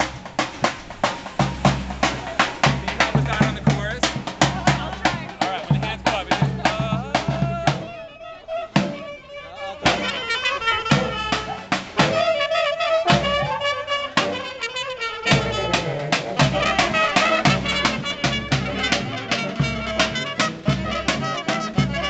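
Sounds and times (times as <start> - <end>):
brass band playing: 0.0 - 22.0.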